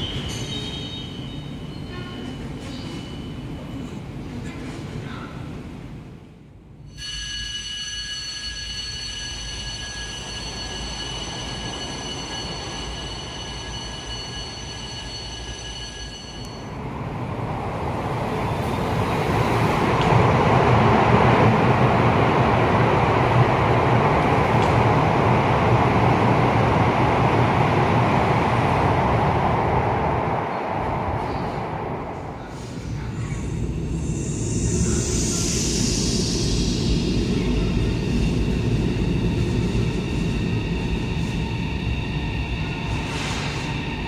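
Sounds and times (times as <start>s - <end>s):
train rushing rumble: 10.0s - 44.0s
high-pitched multi-tone whine: 33.6s - 44.0s.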